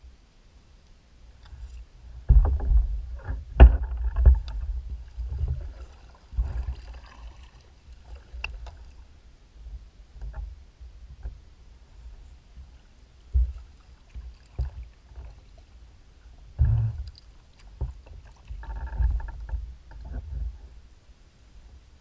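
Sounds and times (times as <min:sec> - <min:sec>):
low rumbling of kayak on water: 0:00.0 - 0:22.0
knocks and bumps on hull: 0:02.2 - 0:06.8, 0:13.3 - 0:15.3, 0:16.5 - 0:17.1, 0:17.7 - 0:20.7.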